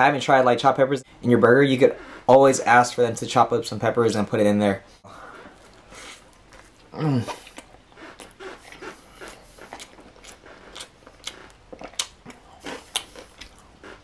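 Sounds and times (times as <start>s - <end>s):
chewing with sharp crunches: 5.2s - 14.0s
biting into crunchy food: 5.5s - 14.0s.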